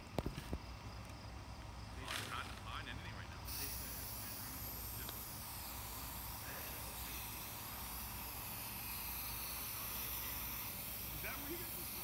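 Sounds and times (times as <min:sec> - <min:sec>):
aerosol spray can hissing: 0:03.5 - 0:12.0.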